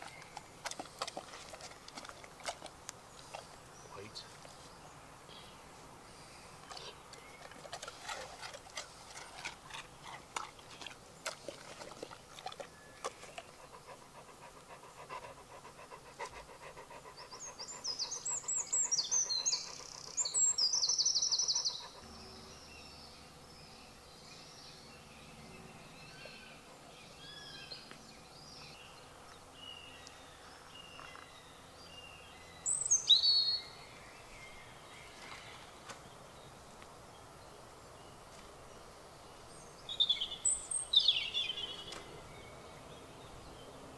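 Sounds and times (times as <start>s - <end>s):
dog panting: 7.4s - 22.0s
songbird trilling: 17.2s - 22.0s, 39.9s - 42.5s.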